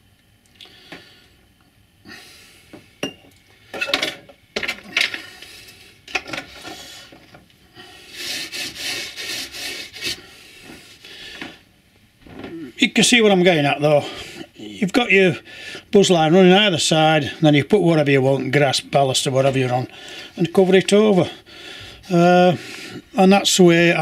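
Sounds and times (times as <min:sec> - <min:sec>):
scatter rubbing through metal sieve: 0:08.1 - 0:10.3.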